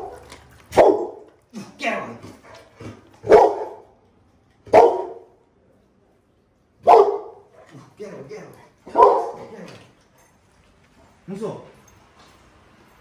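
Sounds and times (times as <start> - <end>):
dog barking: 0.0 - 1.3, 2.5 - 4.0, 4.7 - 5.4, 6.8 - 7.8, 8.9 - 9.5.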